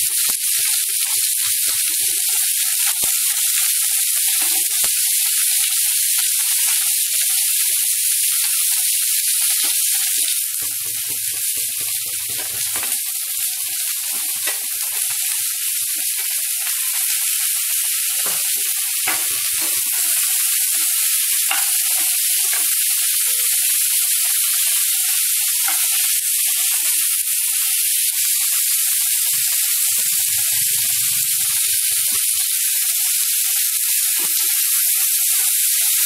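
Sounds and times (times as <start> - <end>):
vegetables sizzling in hot oil: 0.0 - 36.0
spatula clicking against pan: 9.4 - 23.5.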